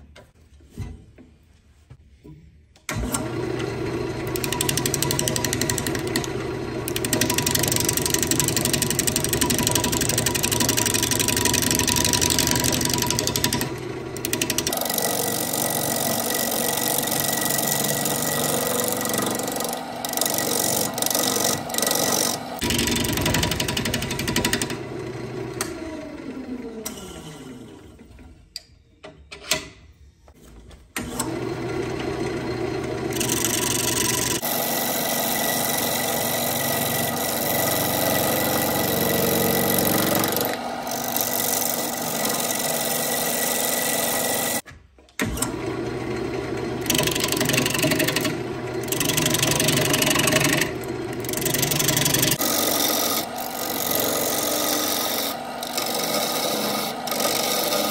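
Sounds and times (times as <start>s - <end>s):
lathe motor hum: 2.9s - 27.0s, 31.2s - 44.6s, 45.2s - 57.9s
gouge scraping wood on lathe: 3.7s - 24.6s, 33.1s - 44.6s, 46.8s - 57.9s.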